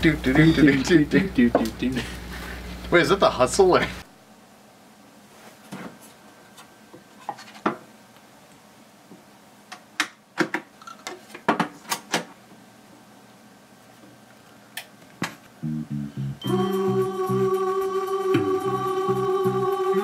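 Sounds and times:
music with rhythmic beat: 16.4s - 20.0s.

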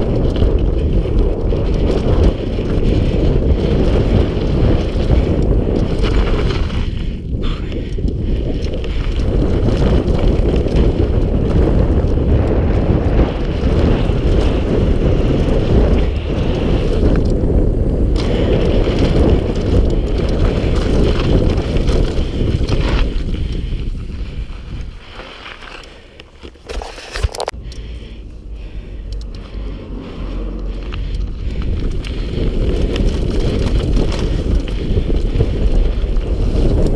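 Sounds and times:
tyres crunching over gravel: 0.0s - 7.6s, 30.4s - 36.9s
bike rattling over bumps: 0.0s - 36.9s
wind buffeting microphone: 0.0s - 36.9s.

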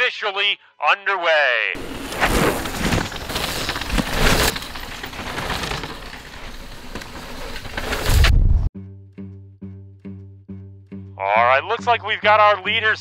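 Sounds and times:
bicycle tyres on gravel: 1.8s - 8.3s.

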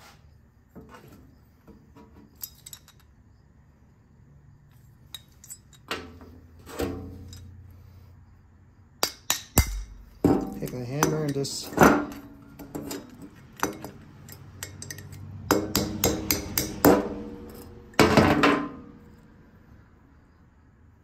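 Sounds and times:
tools clinking on metal workbench: 2.0s - 3.2s, 5.0s - 7.6s, 9.0s - 18.8s.

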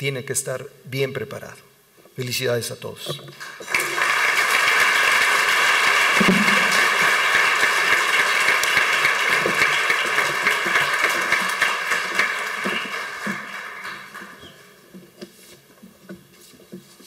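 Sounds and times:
audience applauding: 3.4s - 14.9s.

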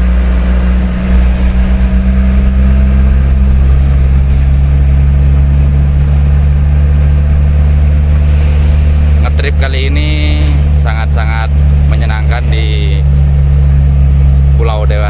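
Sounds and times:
truck engine drone: 0.0s - 15.0s.

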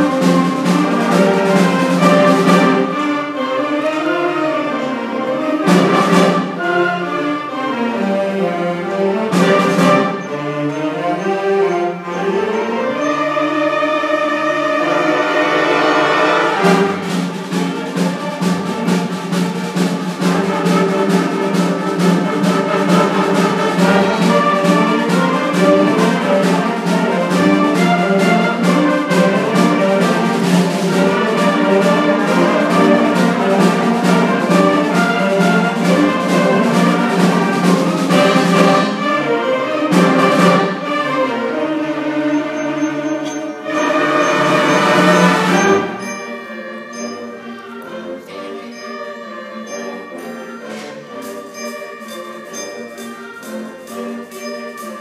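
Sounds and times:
fast percussion beat: 0.0s - 3.2s, 5.6s - 6.8s, 9.3s - 10.3s, 14.8s - 41.2s, 43.8s - 47.4s, 48.3s - 55.0s
brass and woodwind lines: 0.0s - 55.0s.

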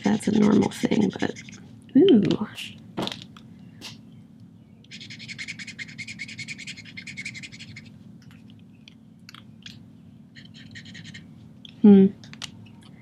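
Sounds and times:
marker scratching on paper: 0.0s - 1.6s, 4.9s - 7.9s, 10.4s - 11.2s.

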